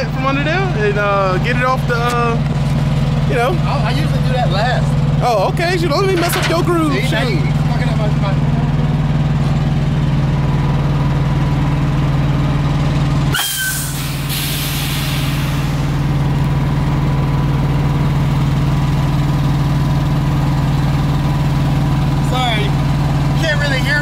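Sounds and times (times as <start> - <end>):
diesel engine idling: 0.0 - 24.0
air brake hissing: 13.3 - 16.1.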